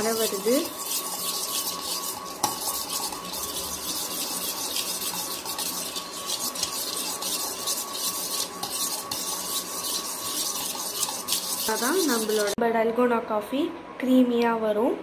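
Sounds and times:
metal spoon whisking in steel bowl: 0.0s - 12.6s.

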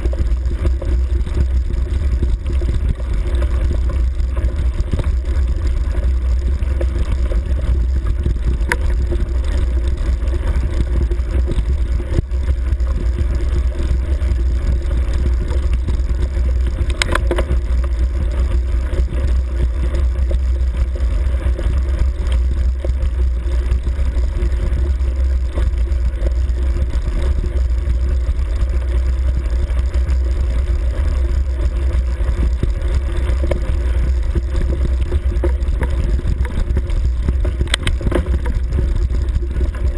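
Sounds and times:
vehicle engine low rumble: 0.0s - 39.9s.

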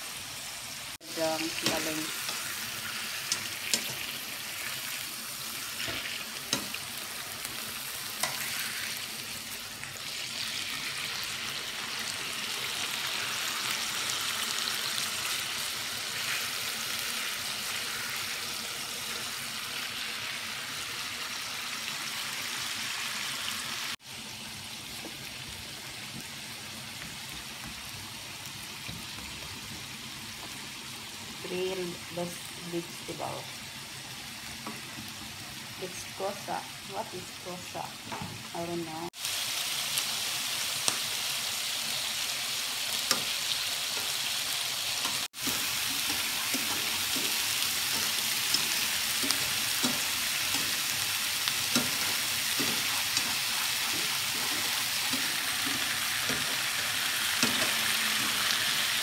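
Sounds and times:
chicken sizzling in oil: 0.0s - 59.0s
tongs clicking against pan: 3.3s - 4.0s, 5.9s - 6.8s, 43.1s - 43.4s, 45.0s - 50.9s, 51.5s - 56.6s, 57.4s - 58.4s.

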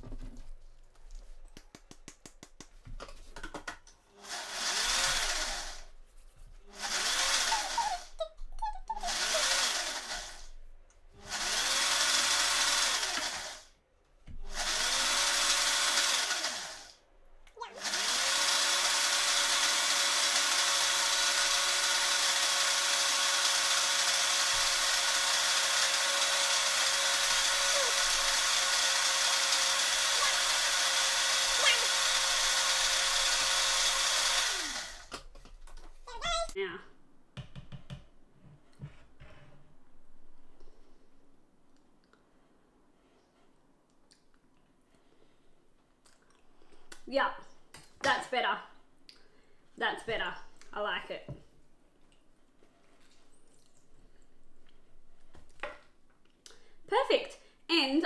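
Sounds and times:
blender motor whining: 4.2s - 5.9s, 6.7s - 8.2s, 8.9s - 10.5s, 11.2s - 13.7s, 14.4s - 16.9s, 17.7s - 35.1s.

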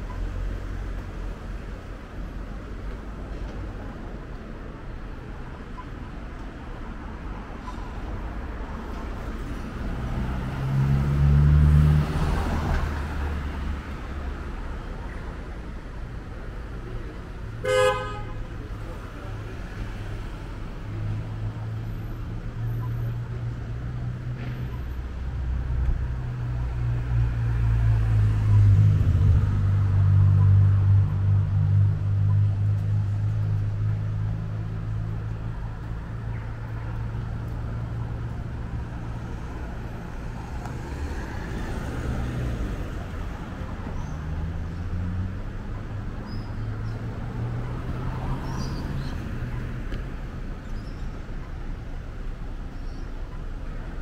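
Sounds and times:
road noise: 0.0s - 54.0s.

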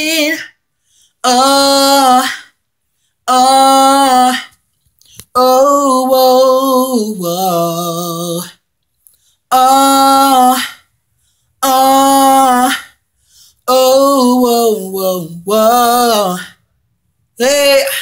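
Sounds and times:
man singing unaccompanied: 0.0s - 0.6s, 1.2s - 2.6s, 3.2s - 4.6s, 5.2s - 8.7s, 9.5s - 10.9s, 11.6s - 13.0s, 13.6s - 16.7s, 17.3s - 18.0s.

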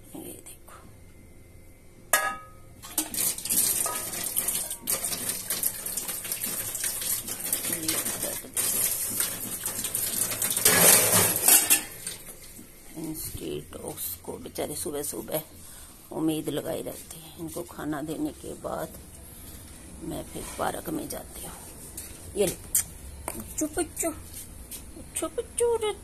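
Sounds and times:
metal bowl set down with clang: 2.2s - 3.1s.

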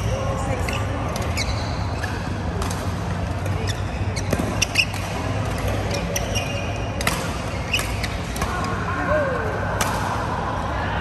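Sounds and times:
shoes squeaking on court floor: 0.0s - 8.4s
rackets striking shuttlecock: 2.5s - 3.6s, 4.2s - 8.7s.

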